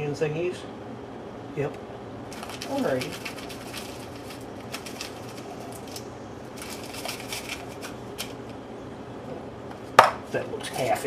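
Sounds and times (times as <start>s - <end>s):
fried onions rattling into a dish: 2.3s - 8.4s.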